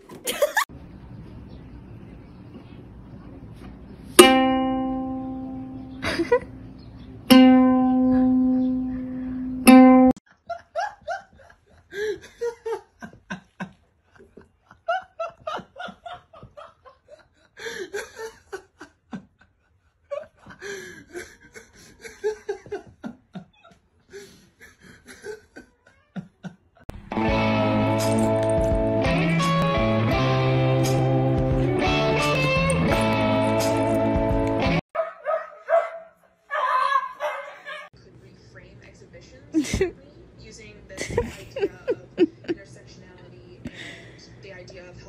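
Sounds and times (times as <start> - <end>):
ukulele chords strummed: 4.2 - 6.6, 7.2 - 10.2, 27.0 - 34.8.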